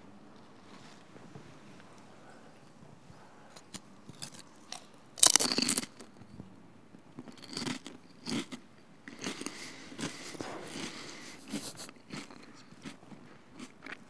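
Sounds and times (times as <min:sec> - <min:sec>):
crunchy snack chewing: 0:03.6 - 0:06.3, 0:07.2 - 0:14.0.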